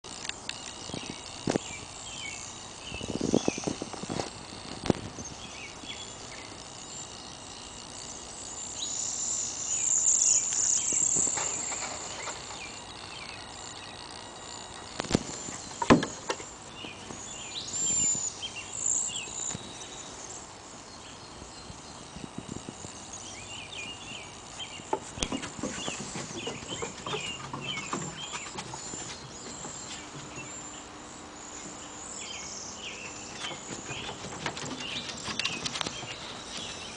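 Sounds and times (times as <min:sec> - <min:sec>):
small birds chirping: 0:00.1 - 0:36.9
puppy paws scampering: 0:24.7 - 0:30.5, 0:33.3 - 0:36.9.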